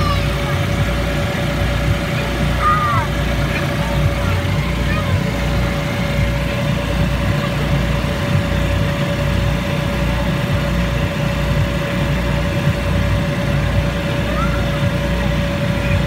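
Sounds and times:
electric air blower humming: 0:00.0 - 0:16.0.

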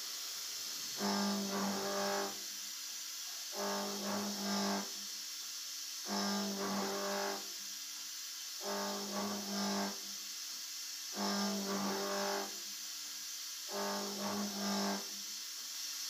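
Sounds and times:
steady high hiss: 0:00.0 - 0:16.0
milling machine cutting metal: 0:01.0 - 0:02.4, 0:03.6 - 0:04.9, 0:06.1 - 0:07.5, 0:08.6 - 0:10.0, 0:11.2 - 0:12.6, 0:13.7 - 0:15.0.

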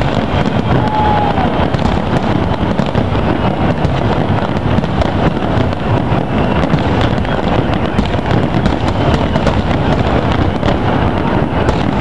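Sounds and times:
fireworks bursting rumble: 0:00.0 - 0:12.0
fireworks crackling: 0:00.0 - 0:12.0.

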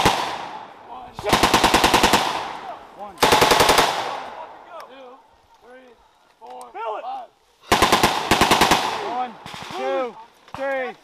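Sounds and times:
machine gun automatic fire: 0:01.2 - 0:02.4, 0:03.2 - 0:04.2, 0:07.7 - 0:09.8.

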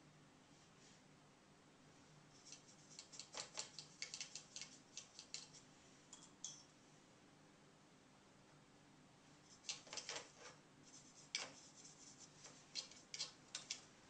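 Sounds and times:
light crisp clicks and scratches: 0:02.4 - 0:06.7, 0:09.4 - 0:14.0.

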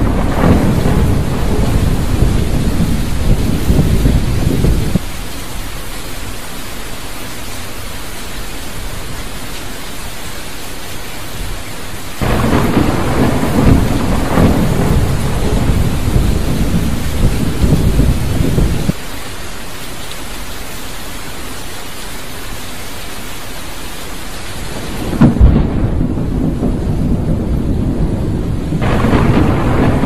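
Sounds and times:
low thunder rumbling: 0:00.0 - 0:05.8, 0:12.2 - 0:19.0, 0:24.7 - 0:30.0
heavy rain hissing: 0:00.0 - 0:30.0.

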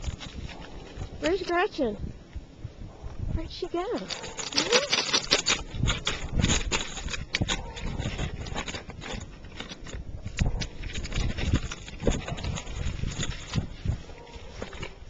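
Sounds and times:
dog digging in crusty snow: 0:05.6 - 0:15.0.

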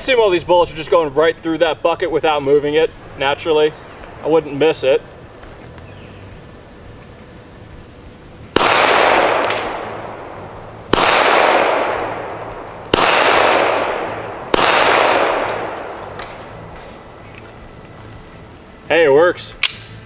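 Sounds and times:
pistol shots echoing: 0:08.5 - 0:17.2.

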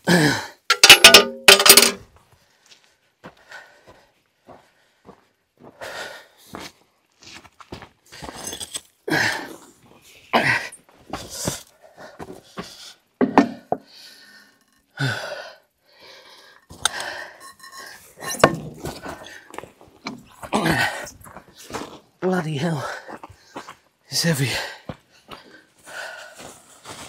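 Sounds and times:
person panting and grunting: 0:00.0 - 0:00.7, 0:09.1 - 0:09.7, 0:10.3 - 0:14.2, 0:15.0 - 0:17.4, 0:20.3 - 0:21.8, 0:22.6 - 0:23.3
metal clinks and knocks: 0:00.7 - 0:02.0, 0:08.4 - 0:08.9, 0:16.9 - 0:19.0.

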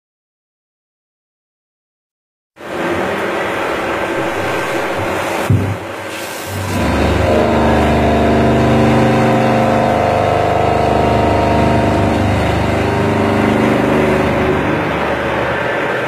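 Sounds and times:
milling cutter whine: 0:02.6 - 0:16.0
coolant spray hiss: 0:04.5 - 0:06.8.

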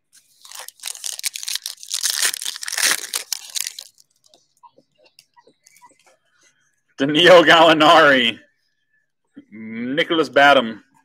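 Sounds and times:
foil wrapper crinkling and tearing: 0:00.2 - 0:04.3.

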